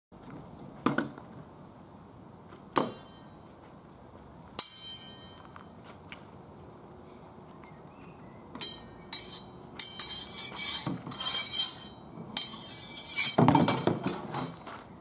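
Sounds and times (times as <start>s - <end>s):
swords clanging: 4.6s - 5.4s, 8.6s - 14.5s.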